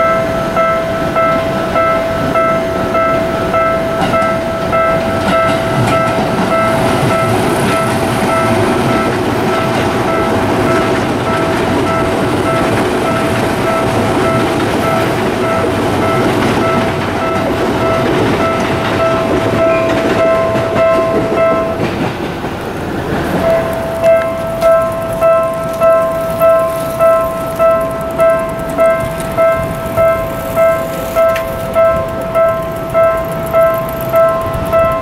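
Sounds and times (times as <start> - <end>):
level crossing alarm chime: 0.0 - 21.8
train rumbling past: 0.0 - 35.0
wheels clacking over rail joints: 0.0 - 35.0.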